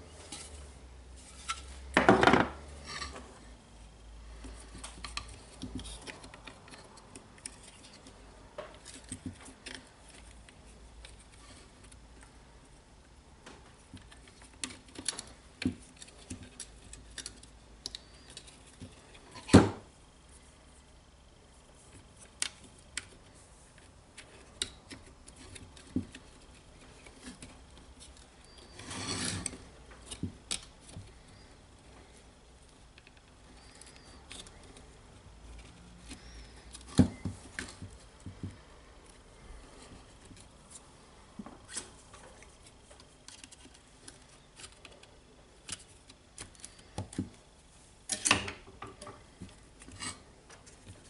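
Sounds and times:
rustling scrape: 0.0s - 1.9s, 28.6s - 29.8s
small parts clicking and tapping: 13.4s - 19.6s.

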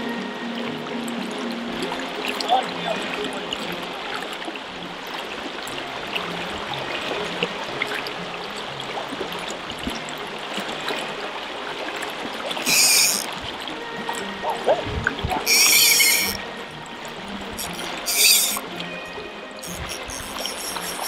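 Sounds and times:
quiet background music: 0.0s - 21.0s
river water rippling: 0.0s - 21.0s
fishing reel drag buzzing: 12.6s - 13.3s, 15.4s - 16.4s, 17.6s - 18.6s, 19.6s - 21.0s.

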